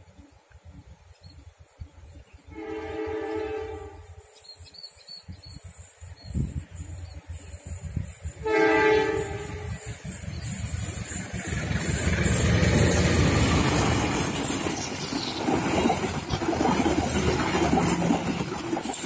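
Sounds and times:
train rumble: 0.0 - 19.0
train horn blast: 2.4 - 4.3, 8.4 - 10.0
wheels clacking over rail joints: 8.8 - 19.0.

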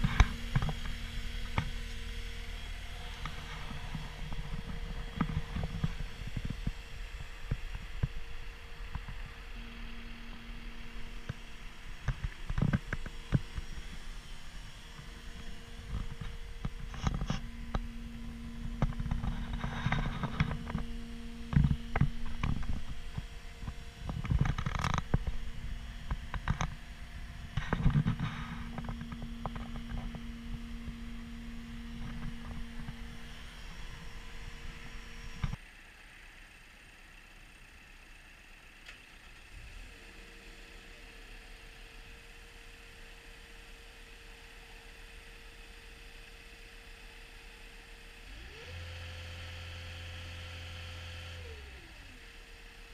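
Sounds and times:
steady low hum: 0.0 - 38.7.

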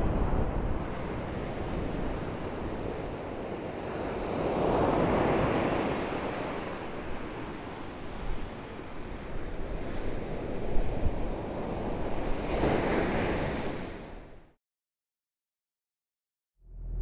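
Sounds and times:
wind buffeting microphone: 0.0 - 12.9.

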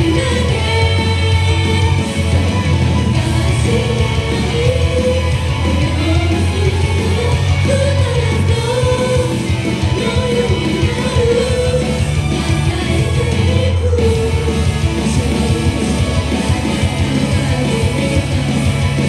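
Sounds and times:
backing track with heavy bass: 0.0 - 19.0
pop song singing: 0.0 - 19.0.

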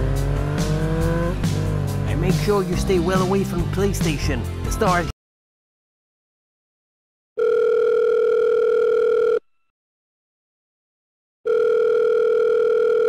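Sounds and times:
telephone ringing: 7.4 - 9.5, 11.5 - 13.0.

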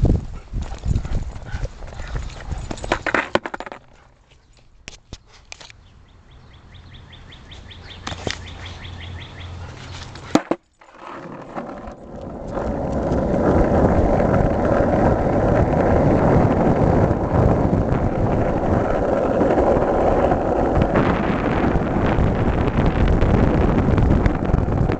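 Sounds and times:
skateboard wheels rolling on asphalt: 0.0 - 4.2, 7.4 - 24.9
sharp skateboard clack: 2.9 - 3.9, 10.2 - 10.6.

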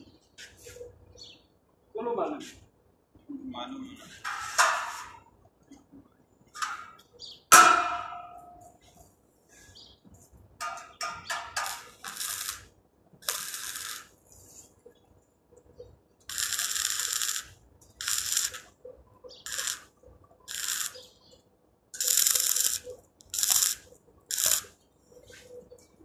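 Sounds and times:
sharp metallic clang: 6.7 - 8.6
arc welding crackling: 11.0 - 14.9, 16.2 - 25.4.

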